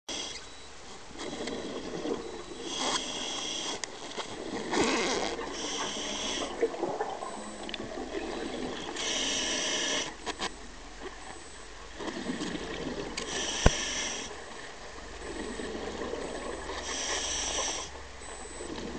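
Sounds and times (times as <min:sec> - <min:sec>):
hissing regulator inhalations: 0:02.6 - 0:03.8, 0:05.5 - 0:06.6, 0:08.9 - 0:10.2, 0:13.2 - 0:14.4, 0:16.8 - 0:18.7
exhaled bubbles bursting: 0:06.5 - 0:08.8.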